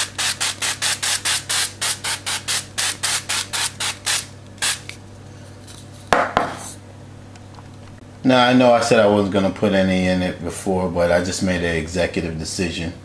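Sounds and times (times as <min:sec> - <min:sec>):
spray bottle hissing: 0:00.0 - 0:04.9.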